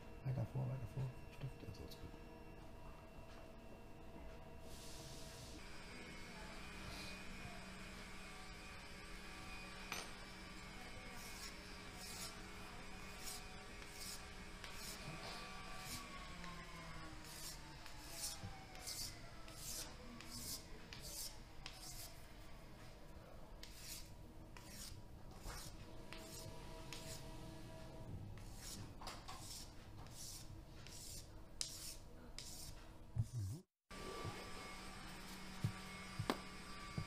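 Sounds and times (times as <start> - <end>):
hand file scraping metal: 11.1 - 16.2, 17.2 - 22.1, 23.6 - 27.2, 28.4 - 33.6.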